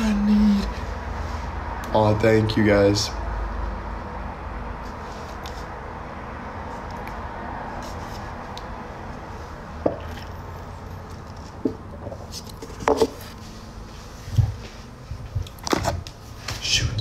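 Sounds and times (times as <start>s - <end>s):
low background noise: 0.0s - 17.0s
soft handling knocks and rustles: 11.1s - 16.7s.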